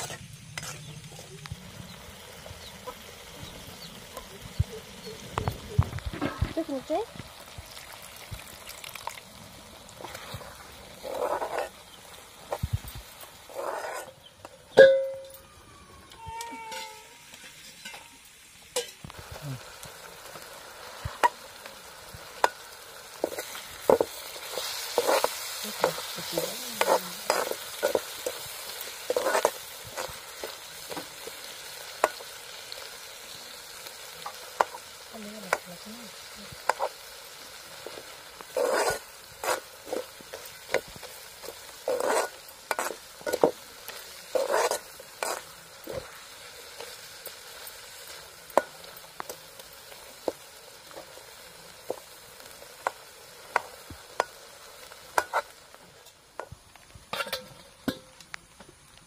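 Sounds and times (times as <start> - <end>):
curry sizzling: 0.0 - 59.0
ladle scraping metal pot: 10.0 - 11.8, 13.5 - 14.2, 23.2 - 31.3, 38.4 - 46.0.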